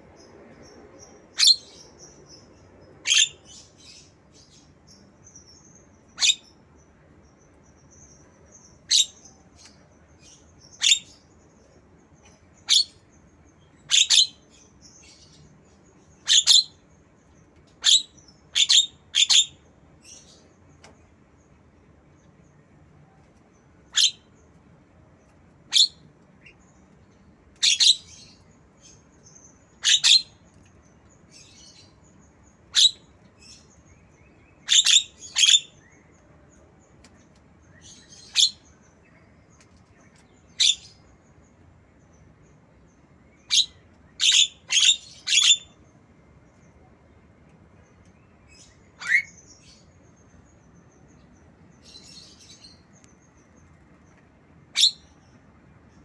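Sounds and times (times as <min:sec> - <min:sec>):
bird chirping: 0:00.0 - 0:56.0.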